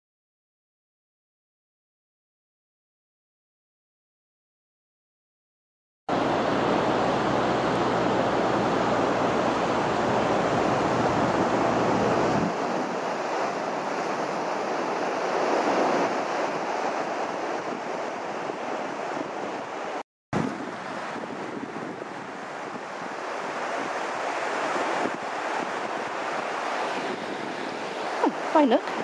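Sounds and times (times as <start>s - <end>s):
surf breaking on beach: 6.1s - 29.0s
wind on microphone: 6.1s - 29.0s.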